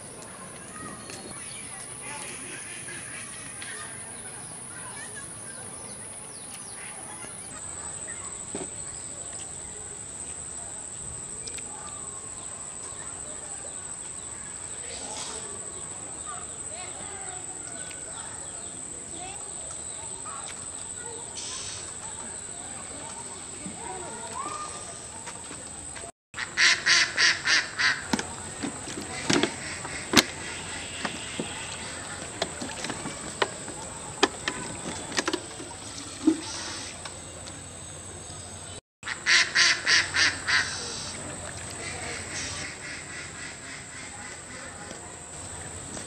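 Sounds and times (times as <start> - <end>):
duck quacking: 26.4 - 28.2, 29.1 - 31.8, 39.1 - 41.0, 41.8 - 44.8.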